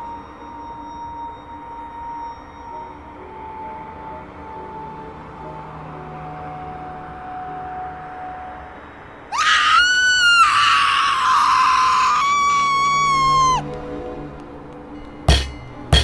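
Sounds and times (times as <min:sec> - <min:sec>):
person screaming: 0:09.3 - 0:13.6.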